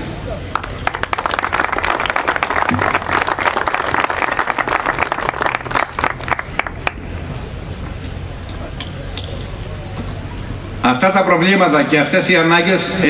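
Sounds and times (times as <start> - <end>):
audience applauding: 0.5 - 7.0.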